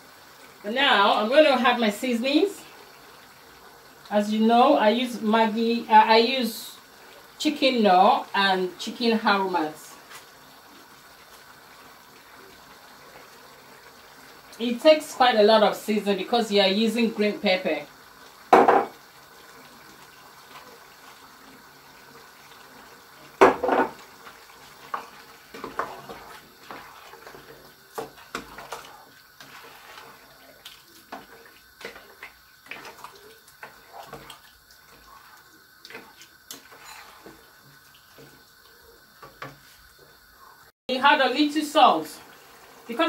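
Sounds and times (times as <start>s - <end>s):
spoon knocking against pot: 18.5s - 19.0s, 23.4s - 24.0s
spoon stirring thick stew: 23.8s - 39.8s.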